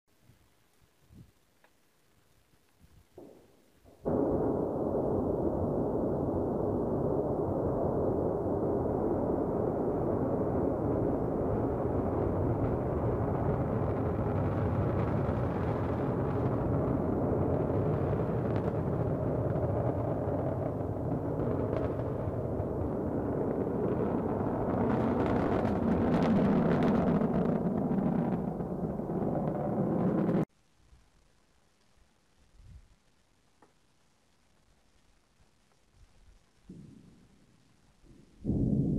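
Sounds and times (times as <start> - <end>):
rocket engines rumbling: 3.9 - 30.5.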